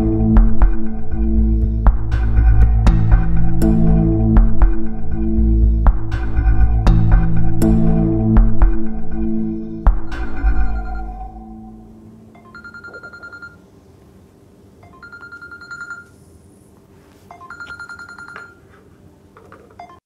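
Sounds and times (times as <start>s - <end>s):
music: 0.0s - 12.2s
mobile phone ringing: 10.1s - 13.7s, 14.8s - 16.2s, 17.3s - 18.8s, 19.6s - 20.0s.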